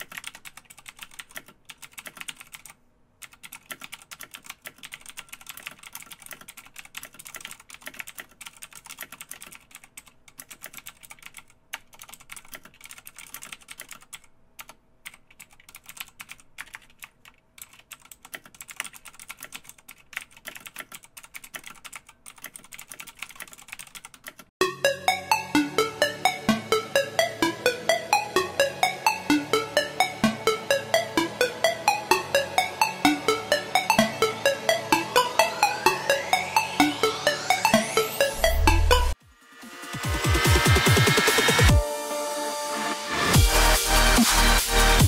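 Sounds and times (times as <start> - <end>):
music with fast beat: 24.6 - 45.0.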